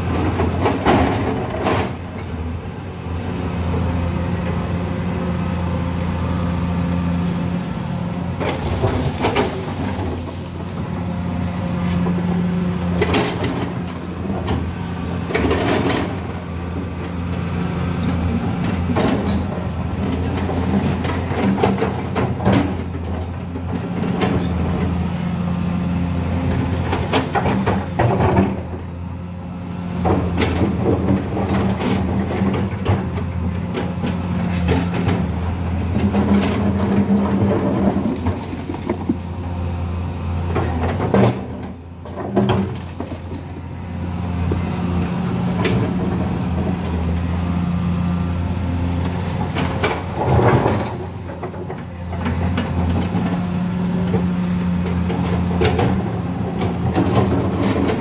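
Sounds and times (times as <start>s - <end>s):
diesel engine running: 0.0s - 58.0s
bucket knocking and scraping: 36.0s - 39.4s.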